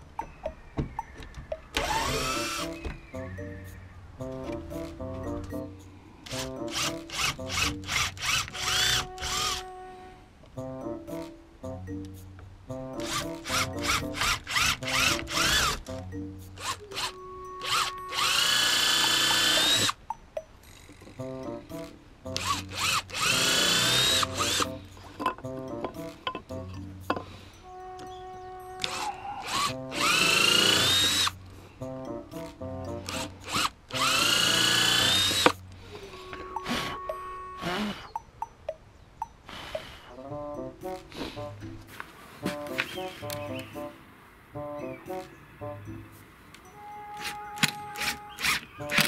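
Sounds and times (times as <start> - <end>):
background music: 0.0 - 49.0
power drill bursts: 1.8 - 2.9, 6.3 - 9.7, 13.0 - 16.0, 16.6 - 20.0, 22.4 - 24.8, 28.8 - 31.4, 33.1 - 35.6, 47.6 - 49.0.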